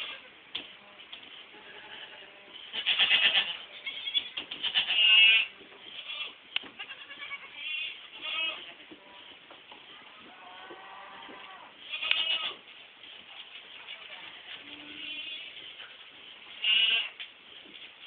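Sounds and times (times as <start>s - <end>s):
goat kids bleating: 0.0s - 0.4s, 1.5s - 9.4s, 10.0s - 12.7s, 13.5s - 15.8s, 16.5s - 17.2s.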